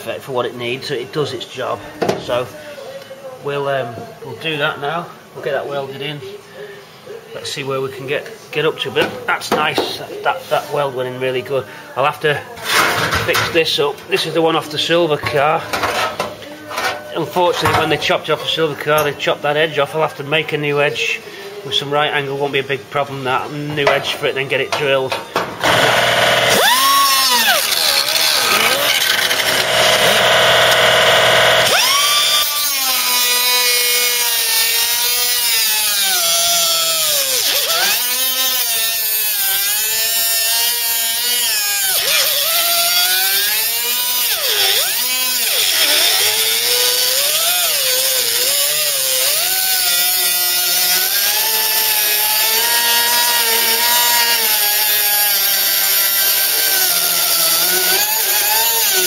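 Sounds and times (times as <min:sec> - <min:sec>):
pneumatic cut-off tool cutting steel: 0:25.6 - 0:59.0.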